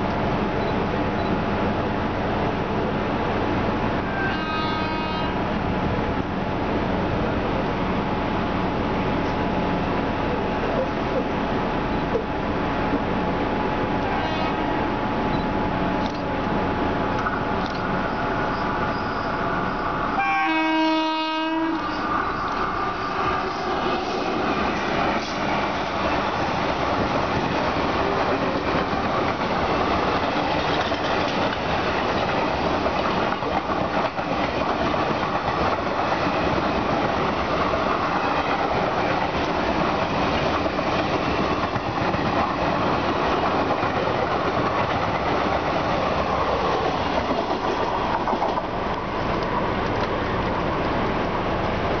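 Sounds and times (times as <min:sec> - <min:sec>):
train wheels clattering over rails: 0:22.0 - 0:52.0.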